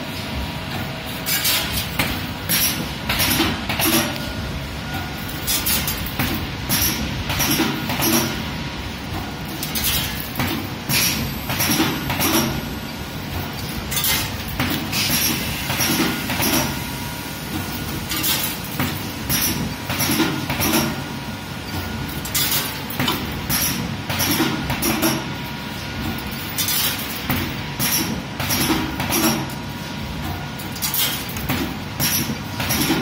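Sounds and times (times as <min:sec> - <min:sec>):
riveting machine clamping and punching: 0:00.7 - 0:12.7, 0:13.3 - 0:16.8, 0:17.5 - 0:21.1, 0:21.7 - 0:25.3, 0:26.0 - 0:33.0.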